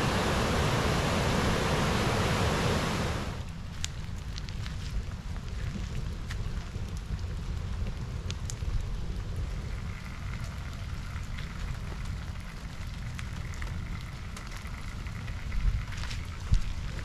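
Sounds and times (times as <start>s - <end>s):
campfire crackling: 0.0s - 17.0s
low steady rumble: 0.0s - 17.0s.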